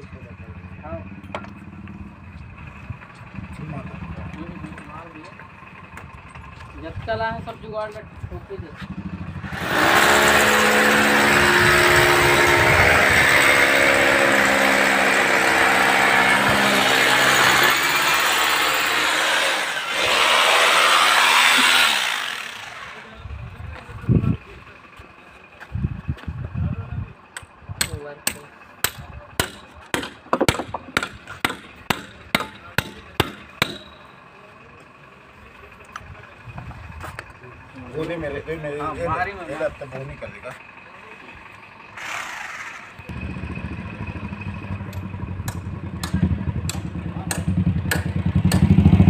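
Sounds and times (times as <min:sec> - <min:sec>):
machine humming loudly: 0:09.4 - 0:23.1.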